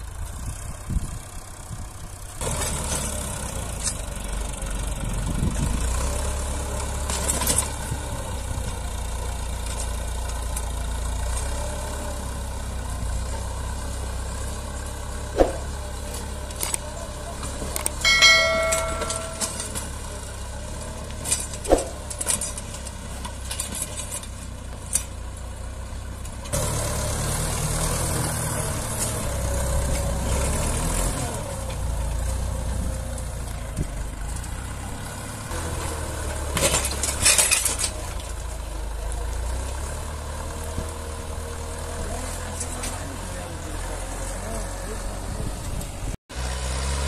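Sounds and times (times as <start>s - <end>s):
tractor engine running: 0.0s - 47.0s
short clatters: 17.5s - 20.0s.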